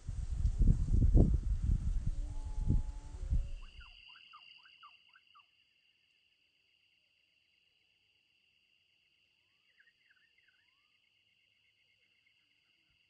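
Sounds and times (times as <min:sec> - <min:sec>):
insects trilling: 0:02.1 - 0:13.0
bird whistling: 0:03.5 - 0:05.4.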